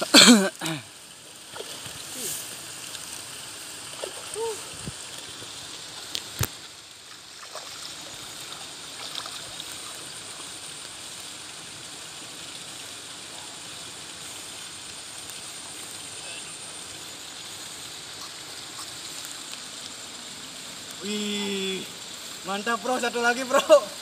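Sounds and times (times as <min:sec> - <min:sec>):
river water rushing: 0:00.0 - 0:17.3.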